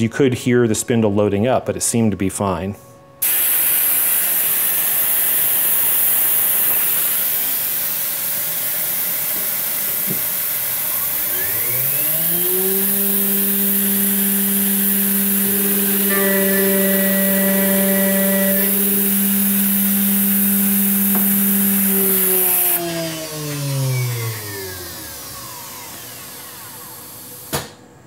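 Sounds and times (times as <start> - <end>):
air nozzle hissing: 3.2 - 22.8
end mill cutting metal: 3.2 - 27.3
mill spindle whining: 4.4 - 27.6.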